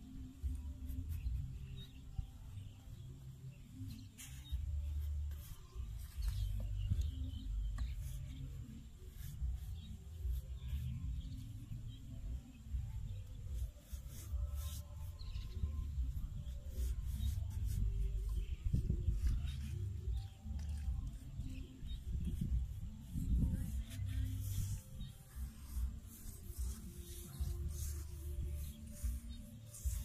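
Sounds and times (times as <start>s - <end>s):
hands scraping damp soil: 3.9s - 8.6s, 13.6s - 30.0s
wind on microphone: 15.4s - 30.0s.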